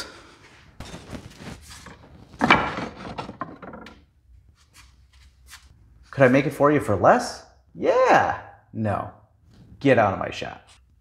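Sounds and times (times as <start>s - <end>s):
scrap wood knocking together: 1.6s - 4.0s.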